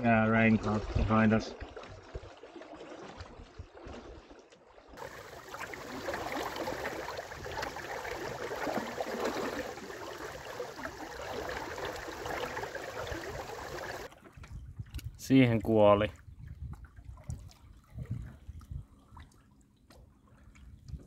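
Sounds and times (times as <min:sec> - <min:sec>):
water splashing along a hull: 0:00.0 - 0:21.0.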